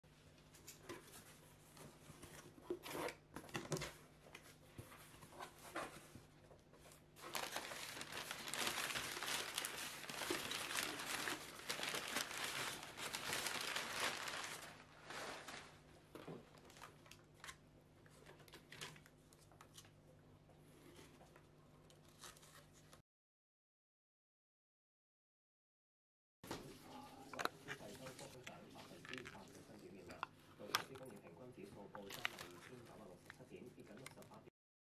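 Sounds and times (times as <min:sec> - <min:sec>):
packaging crinkling and rustling: 0:07.2 - 0:20.0, 0:27.3 - 0:34.3.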